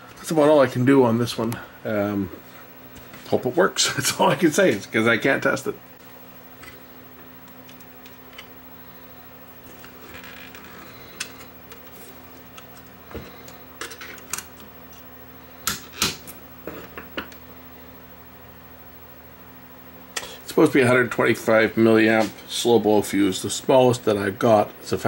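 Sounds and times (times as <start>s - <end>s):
steady low hum: 0.0s - 25.0s
small parts clicking and tapping: 13.8s - 14.7s.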